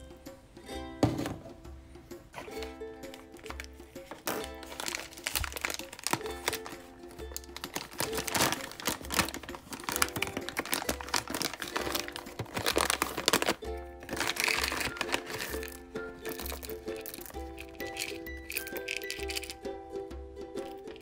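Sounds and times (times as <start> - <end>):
background music: 0.0 - 21.0
coffee mill crunching beans: 3.4 - 19.6.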